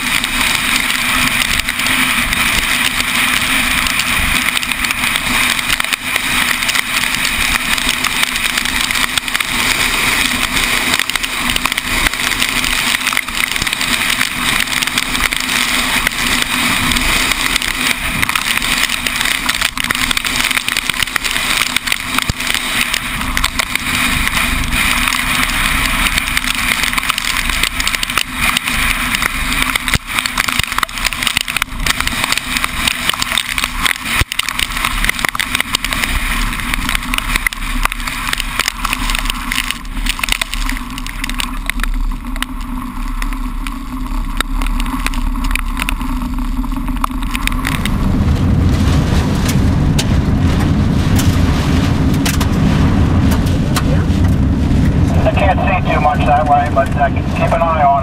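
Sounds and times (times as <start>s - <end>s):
wind and road noise: 0.0s - 58.0s.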